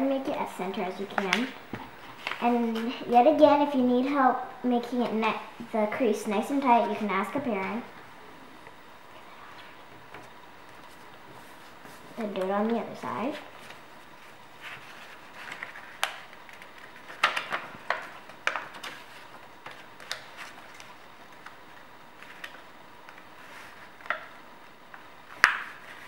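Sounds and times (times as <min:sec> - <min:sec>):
paper folding and crinkling: 0:00.8 - 0:03.0, 0:10.6 - 0:24.4, 0:25.3 - 0:26.0
sharp paper crackles: 0:13.3 - 0:24.3.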